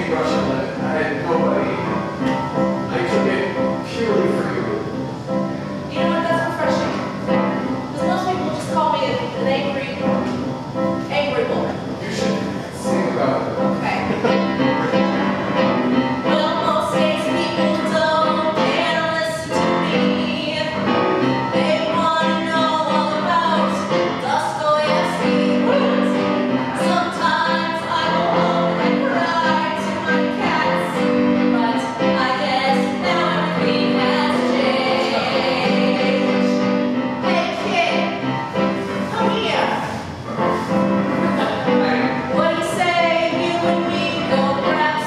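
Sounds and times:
keyboard chords: 0.0 - 45.0
woman singing: 16.1 - 36.6, 41.7 - 45.0.

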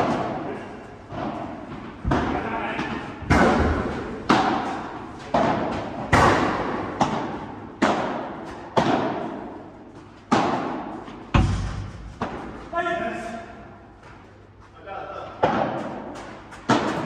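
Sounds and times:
rackets striking ball: 0.0 - 12.8, 15.2 - 17.0
ball bouncing: 1.1 - 12.6.

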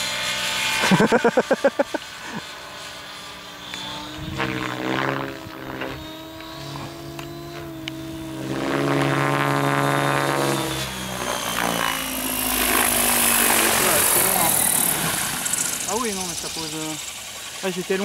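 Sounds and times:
rc helicopter rotor whine: 0.0 - 18.0.

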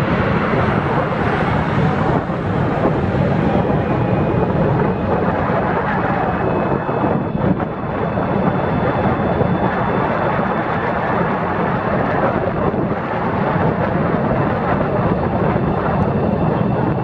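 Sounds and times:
road noise: 0.0 - 6.5
wind rushing on microphone: 0.0 - 17.0.

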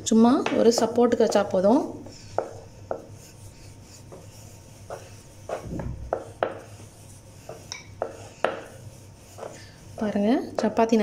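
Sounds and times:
rolling pin rolling dough: 0.0 - 11.0
low rumble: 5.6 - 6.1.

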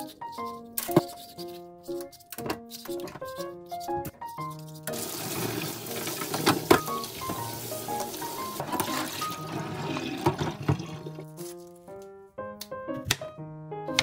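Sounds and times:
water pouring into sink: 4.9 - 11.2.

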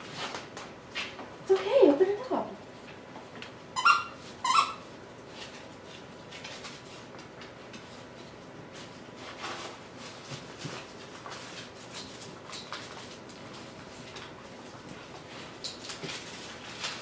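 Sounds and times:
wrapping paper crinkling: 8.0 - 17.0.

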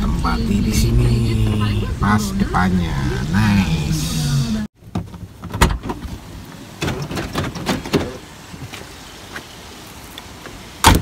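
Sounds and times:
car door opening and shutting: 4.2 - 8.3, 10.8 - 11.0
knocks and clunks: 4.8 - 8.8.

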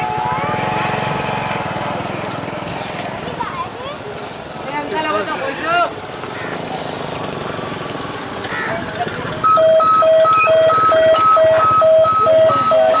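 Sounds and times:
two-tone beeping: 9.4 - 13.0.

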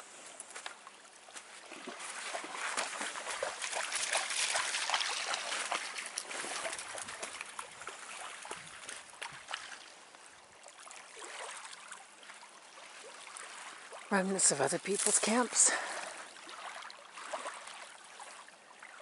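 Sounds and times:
dog splashing in shallow water: 1.4 - 10.0, 10.6 - 19.0.

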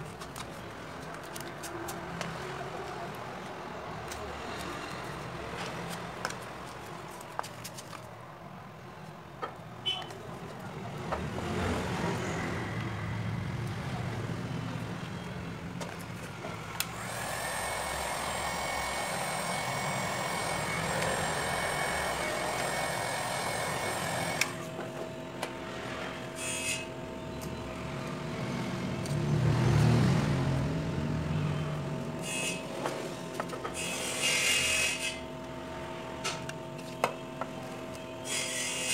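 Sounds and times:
hot air gun blowing: 17.0 - 24.6, 26.4 - 27.0, 32.2 - 32.7, 38.2 - 38.9.

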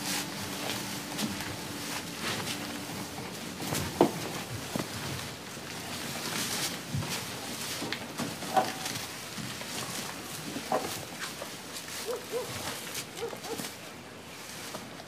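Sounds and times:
rustling on straw floor: 0.0 - 15.0
low hoot-like calls: 12.0 - 12.6.

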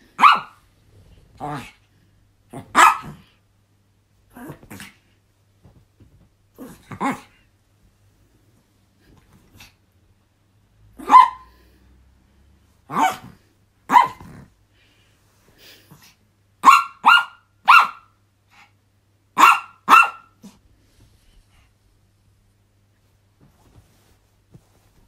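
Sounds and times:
small dog barking: 0.2 - 0.6, 2.5 - 3.3, 11.0 - 11.6, 12.8 - 14.5, 16.6 - 18.2, 19.4 - 20.6.

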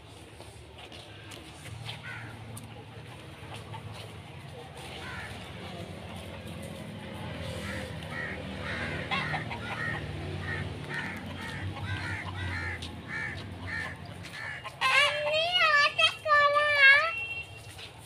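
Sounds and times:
crows cawing: 2.0 - 2.4, 5.0 - 5.5, 7.6 - 15.1.

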